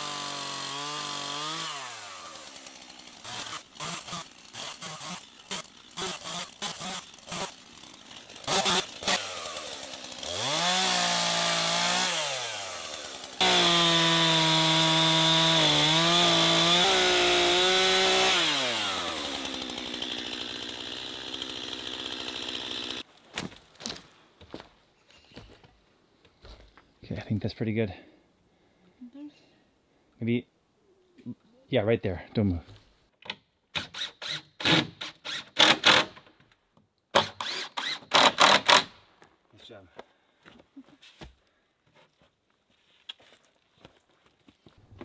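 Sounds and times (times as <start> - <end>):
chainsaw cutting logs: 0.0 - 23.5, 33.7 - 36.3, 37.0 - 39.0.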